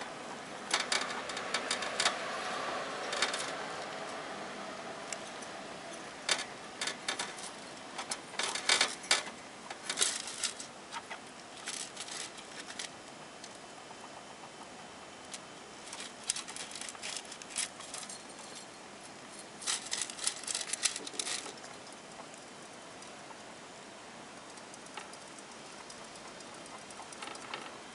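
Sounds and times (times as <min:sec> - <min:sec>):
hamster scrabbling in wire cage: 0:06.3 - 0:12.9, 0:15.8 - 0:18.7, 0:19.6 - 0:21.8.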